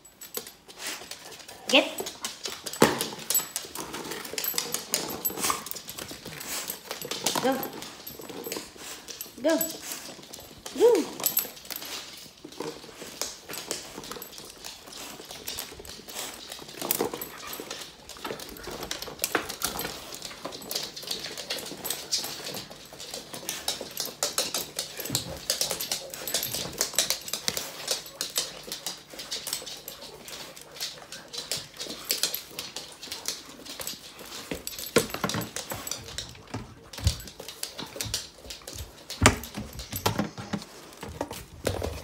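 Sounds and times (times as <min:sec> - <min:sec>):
dog claws clicking on wooden floor: 0:00.0 - 0:42.0
dog whining: 0:10.7 - 0:11.6.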